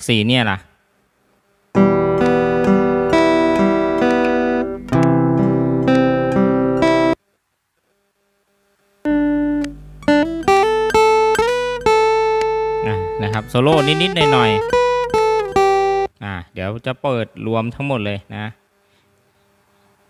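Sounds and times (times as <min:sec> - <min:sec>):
acoustic guitar picked notes: 0:01.7 - 0:07.2, 0:09.1 - 0:16.2
acoustic guitar strumming chords: 0:01.7 - 0:07.2, 0:09.1 - 0:16.1.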